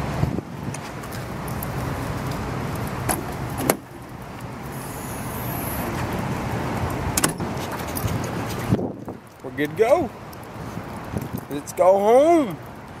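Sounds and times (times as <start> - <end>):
steady hiss: 1.6 - 7.2
steel door shutting: 7.1 - 7.5.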